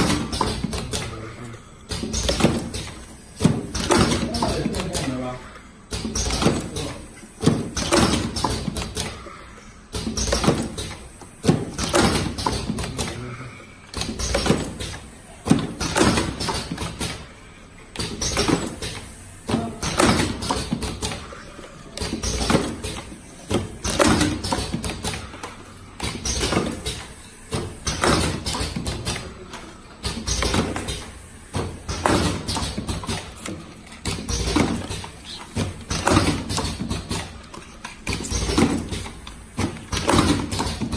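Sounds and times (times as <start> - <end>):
cartoning machine clacking: 21.9 - 40.9.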